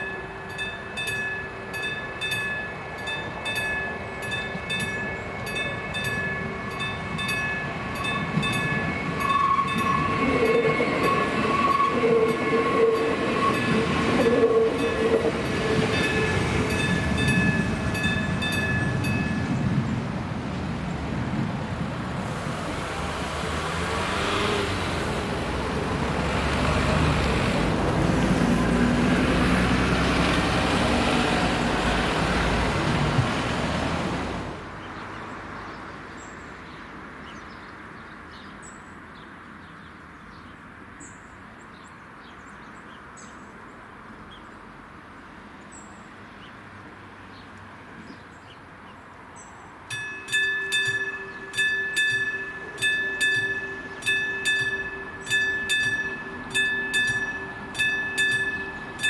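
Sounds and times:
crossing warning bell ringing: 0:00.0 - 0:19.9, 0:49.8 - 0:59.0
cars driving over crossing: 0:00.0 - 0:34.7, 0:49.8 - 0:59.0.

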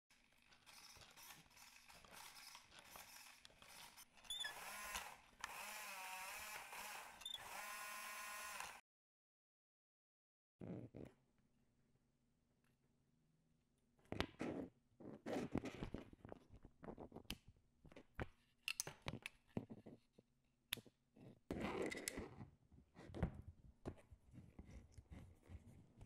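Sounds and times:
wires rustling and scraping: 0:00.1 - 0:05.4.

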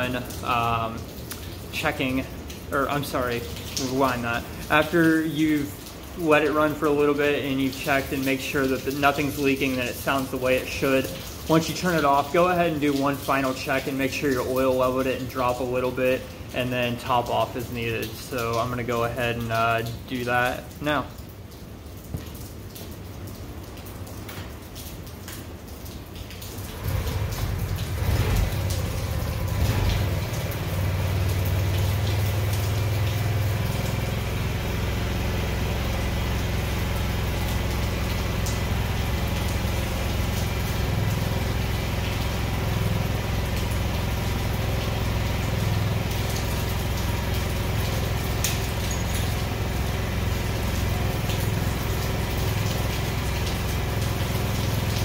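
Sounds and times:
scooter engine starting and idling: 0:26.8 - 0:33.7.

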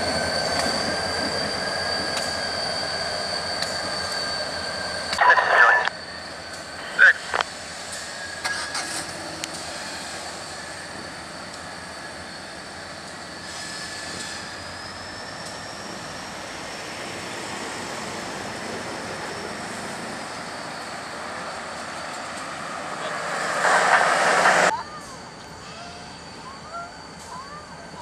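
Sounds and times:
diesel locomotive droning: 0:00.0 - 0:28.0
road traffic passing: 0:18.9 - 0:25.1.

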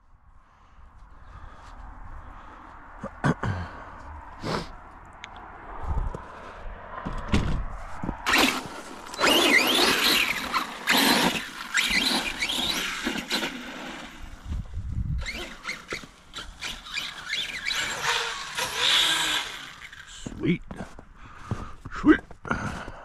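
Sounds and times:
electric motor whining: 0:08.3 - 0:14.4, 0:15.2 - 0:20.3.

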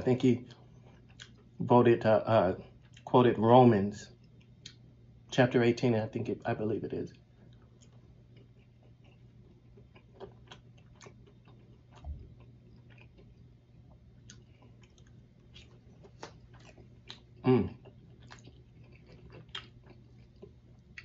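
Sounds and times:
person chewing food: 0:00.5 - 0:01.6, 0:02.6 - 0:03.1, 0:07.4 - 0:21.0.

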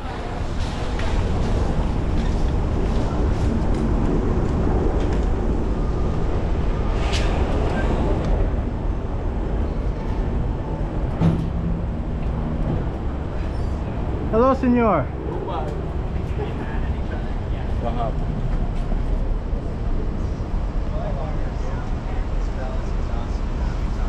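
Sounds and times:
city street traffic: 0:00.0 - 0:24.0.

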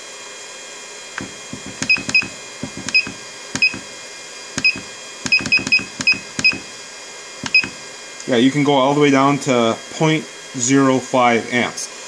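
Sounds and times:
keypad button clicks: 0:01.2 - 0:03.9, 0:04.6 - 0:06.7, 0:07.4 - 0:07.8
short high beeps: 0:01.8 - 0:03.8, 0:04.6 - 0:06.7, 0:07.5 - 0:07.8.

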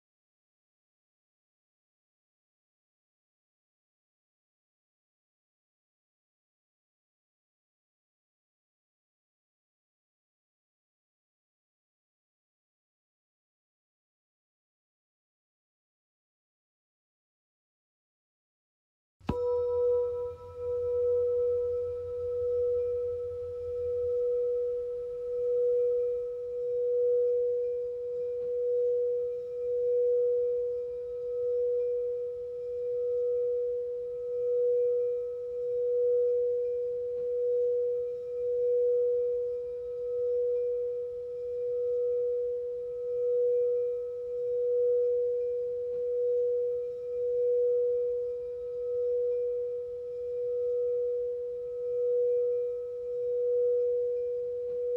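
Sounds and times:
singing bowl held note: 0:19.2 - 0:54.9.

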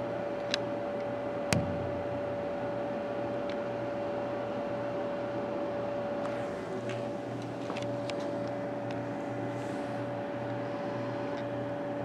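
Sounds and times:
mechanical hum: 0:00.0 - 0:12.0
sharp click: 0:01.5 - 0:02.2.

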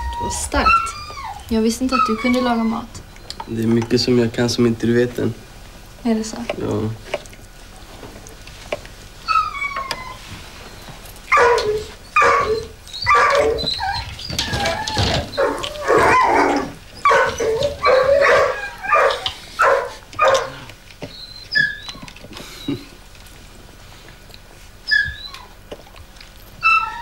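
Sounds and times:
dog whining: 0:00.0 - 0:03.8, 0:09.2 - 0:23.1, 0:24.7 - 0:27.0
dog barking: 0:11.3 - 0:13.7, 0:17.0 - 0:20.6.

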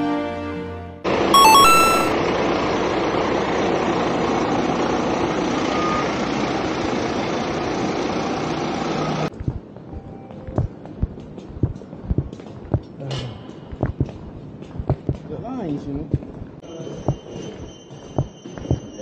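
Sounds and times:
high electronic beeps: 0:01.4 - 0:02.1
fire engine running: 0:02.1 - 0:09.8.

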